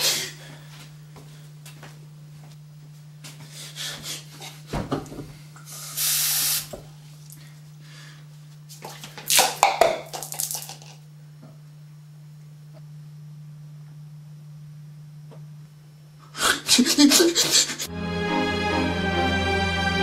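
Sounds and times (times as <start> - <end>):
low electrical hum: 0.0 - 18.0
plastic cup hitting floor: 8.8 - 11.0
cups clattering: 8.9 - 11.0.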